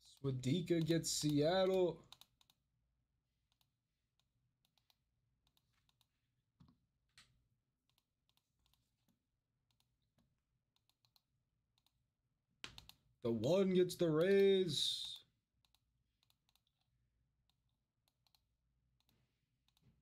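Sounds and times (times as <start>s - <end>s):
keyboard clicks: 0.0s - 2.6s, 12.6s - 13.0s, 14.1s - 16.9s.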